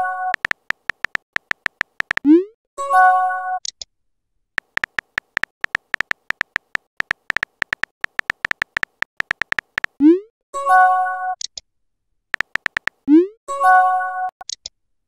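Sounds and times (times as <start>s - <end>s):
keyboard typing pips: 0.3s - 2.3s, 4.6s - 10.0s, 12.4s - 13.1s.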